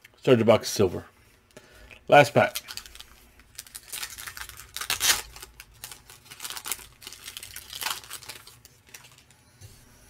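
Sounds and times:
plastic wrapper tearing and crinkling: 2.1s - 9.3s.

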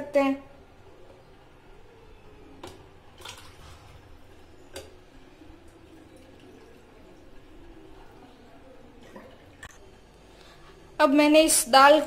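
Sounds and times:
water trickling and dripping: 2.6s - 9.7s.

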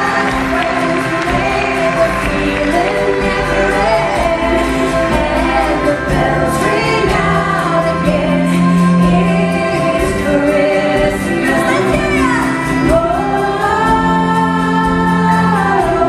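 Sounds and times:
acoustic band playing: 0.0s - 16.0s
women singing in harmony: 0.0s - 16.0s.

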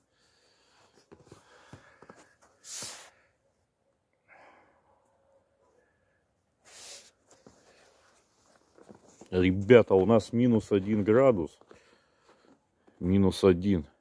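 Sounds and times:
person sniffing: 2.5s - 3.3s, 6.6s - 8.0s.

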